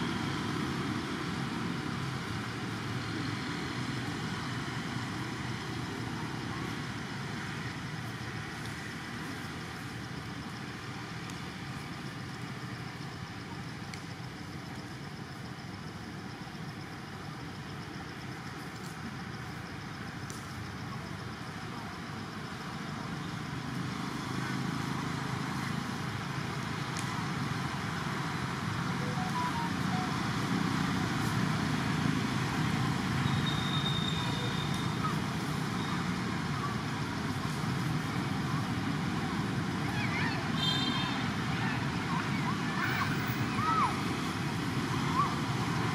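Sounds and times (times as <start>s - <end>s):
distant road traffic din: 0.0s - 45.9s
faint high chirps: 29.0s - 30.5s.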